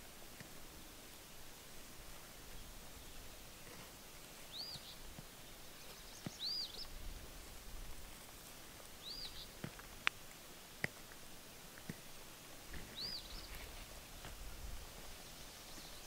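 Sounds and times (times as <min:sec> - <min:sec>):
bird chirping: 0:00.8 - 0:07.6, 0:08.2 - 0:09.9, 0:11.4 - 0:14.3, 0:15.0 - 0:16.0.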